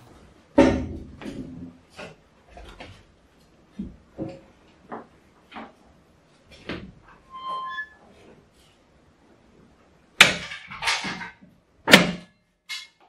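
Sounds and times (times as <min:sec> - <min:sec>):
short squeak: 0:07.2 - 0:08.0.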